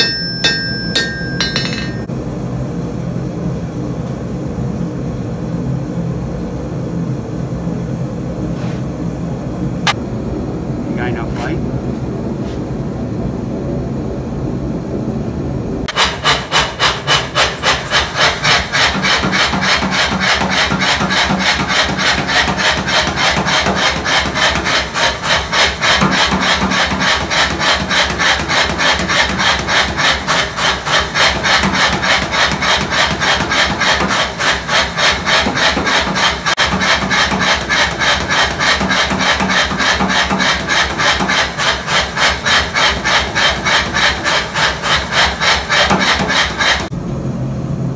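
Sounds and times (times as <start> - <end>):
power hammer striking steel: 0.0 - 2.1, 15.9 - 46.9.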